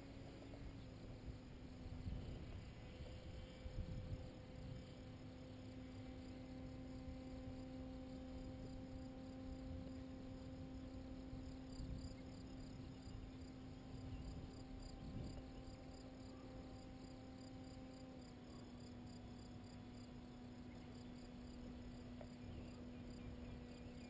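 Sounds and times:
wind rumble on microphone: 0.0 - 18.2
distant paramotor engine drone: 0.0 - 24.0
insects chirping: 0.0 - 24.0.

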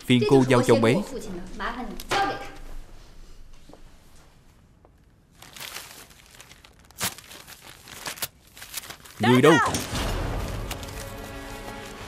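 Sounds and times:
paper rustling: 5.3 - 12.0.

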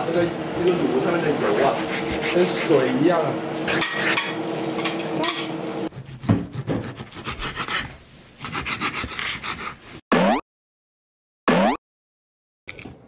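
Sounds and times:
knife sawing through steak: 1.2 - 3.0, 5.9 - 10.0.

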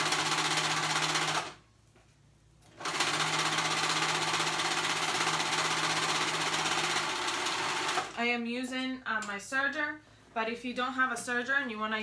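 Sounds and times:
overlocker sewing machine running: 0.0 - 1.6, 2.7 - 8.2.

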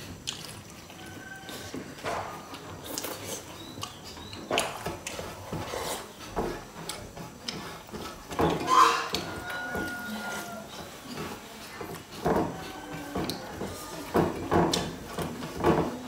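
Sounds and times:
chewing and lip-smacking: 0.0 - 8.3
slurping from a bowl: 5.1 - 6.2.

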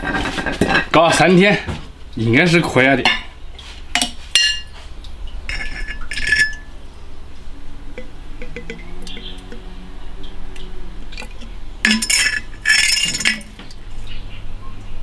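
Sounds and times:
glass lid clinking on jar: 5.5 - 6.7, 8.0 - 9.6, 11.2 - 13.6.

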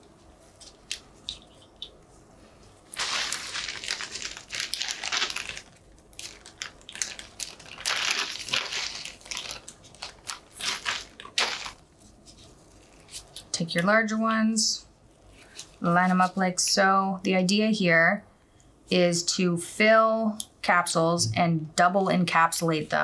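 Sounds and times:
plastic bag crinkling: 2.8 - 13.5.

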